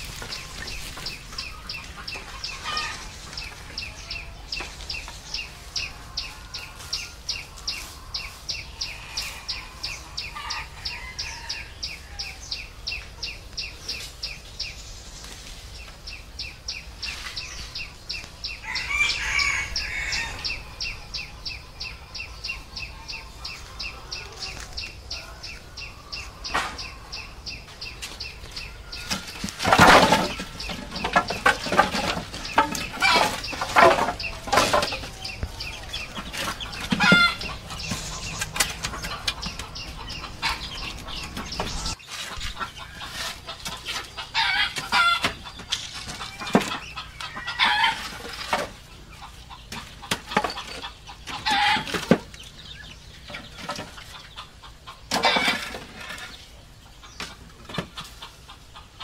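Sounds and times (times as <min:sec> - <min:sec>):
wooden poles clattering: 0:00.0 - 0:08.4, 0:27.6 - 0:56.5, 0:57.2 - 0:58.3
chicken clucking: 0:00.0 - 0:59.0.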